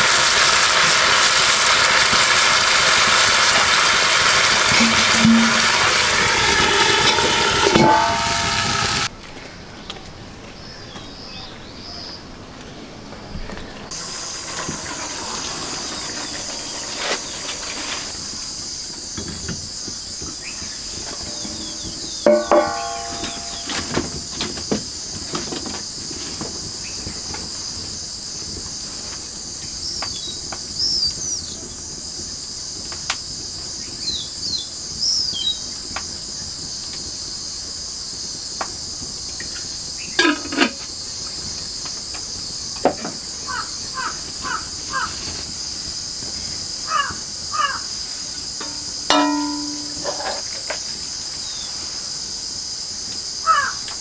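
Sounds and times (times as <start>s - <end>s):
crow caws: 43.5s - 45.2s, 46.9s - 48.0s, 53.4s - 53.9s.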